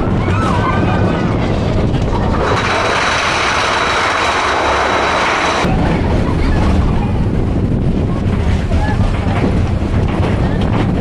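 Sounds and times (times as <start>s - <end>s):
roller coaster rumbling on track: 0.0s - 11.0s
wind buffeting microphone: 0.0s - 11.0s.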